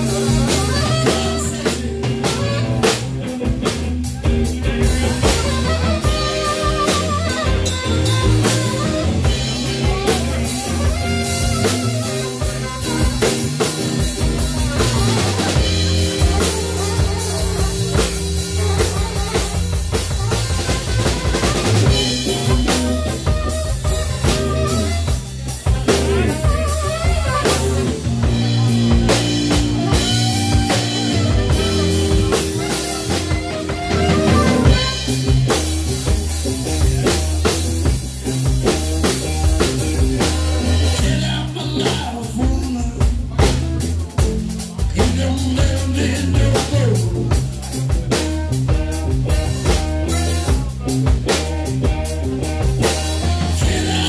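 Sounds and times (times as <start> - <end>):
melodic lead lines: 0.0 - 42.2
drum kit: 0.0 - 54.0
electric bass: 0.0 - 54.0.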